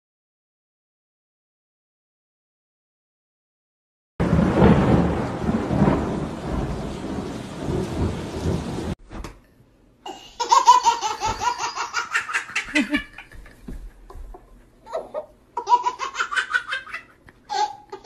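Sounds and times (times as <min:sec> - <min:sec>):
heavy rumble of thunder: 0:04.2 - 0:09.0
baby laughing: 0:10.1 - 0:18.0.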